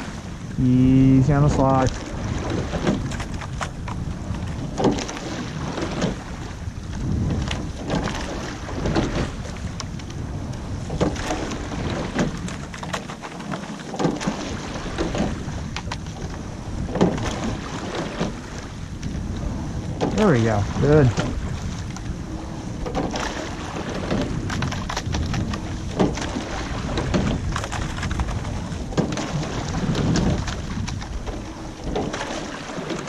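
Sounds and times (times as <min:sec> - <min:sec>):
oars knocking and splashing: 0:00.0 - 0:33.0
wind and water rushing: 0:00.0 - 0:33.0.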